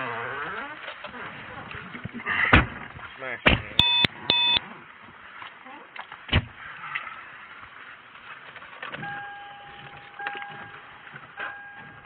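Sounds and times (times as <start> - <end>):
electronic beep tone: 3.8 - 4.6.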